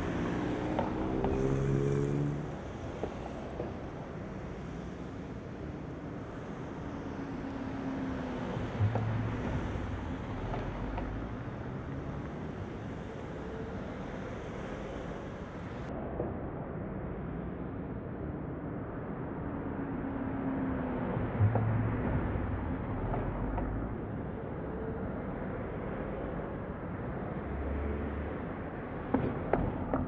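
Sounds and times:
suv engine rumble: 0:00.0 - 0:15.9.

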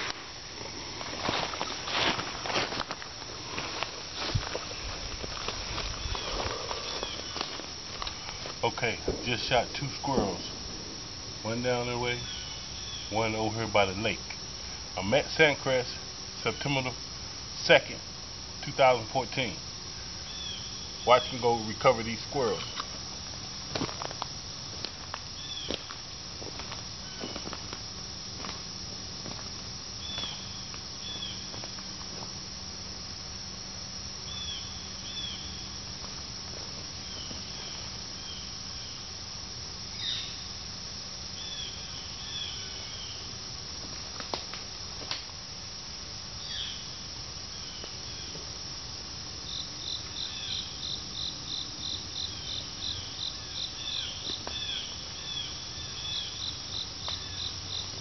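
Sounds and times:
crickets chirping: 0:00.0 - 0:58.0
rapid high chirps: 0:08.1 - 0:13.6.

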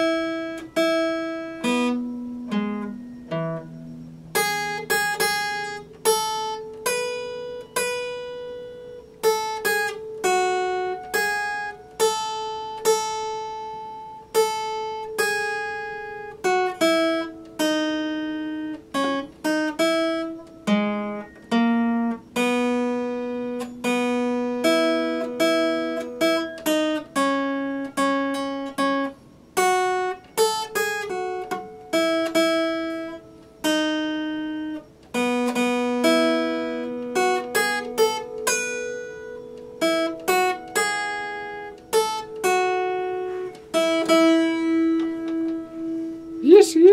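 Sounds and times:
fingerstyle acoustic guitar: 0:00.0 - 0:46.9.

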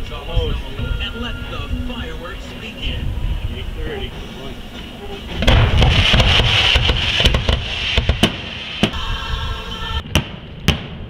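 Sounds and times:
fireworks crackling: 0:04.6 - 0:10.9
firework sharp bangs: 0:05.2 - 0:09.1, 0:10.1 - 0:11.0.

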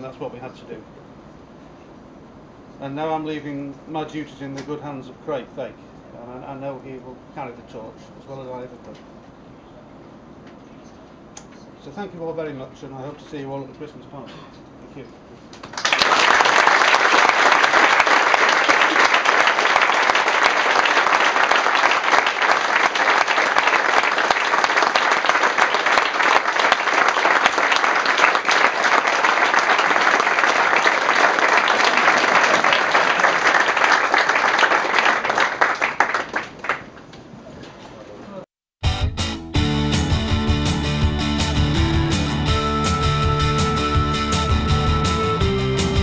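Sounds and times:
crowd applauding: 0:15.6 - 0:36.9, 0:39.9 - 0:46.0.

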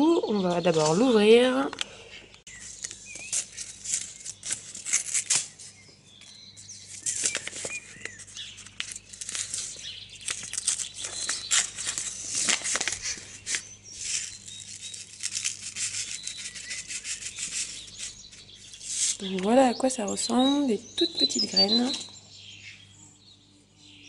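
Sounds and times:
paper packet crinkling: 0:02.5 - 0:05.8, 0:06.6 - 0:19.6.

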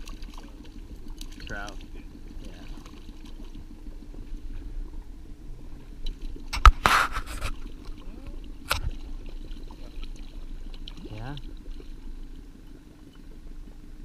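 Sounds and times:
small outboard motor running: 0:00.0 - 0:14.0.

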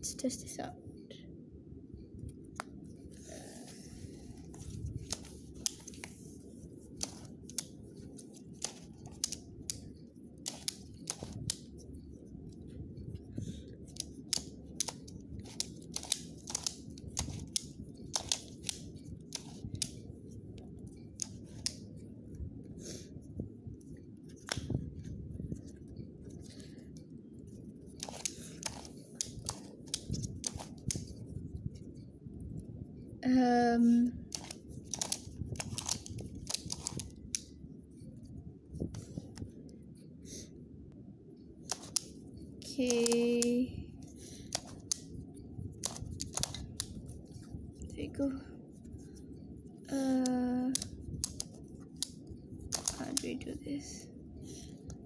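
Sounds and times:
plastic puzzle clicking as turned: 0:04.5 - 0:06.1, 0:07.0 - 0:07.8, 0:08.5 - 0:11.7, 0:13.9 - 0:20.1, 0:21.2 - 0:21.8, 0:27.9 - 0:31.2, 0:34.2 - 0:37.5, 0:41.6 - 0:43.6, 0:44.4 - 0:45.1, 0:45.7 - 0:47.1, 0:50.0 - 0:53.5.

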